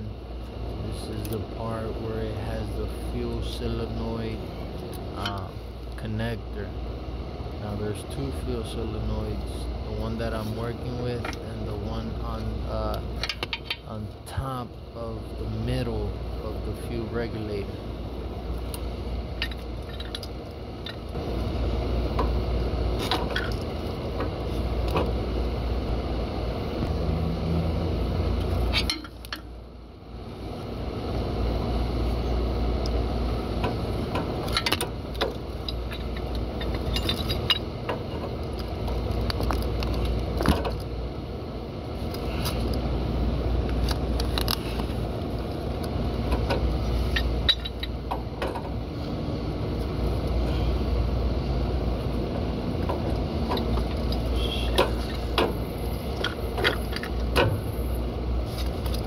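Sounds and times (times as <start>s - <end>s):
low background rumble: 0.0s - 59.0s
small metallic clicks and clinks: 34.4s - 37.7s.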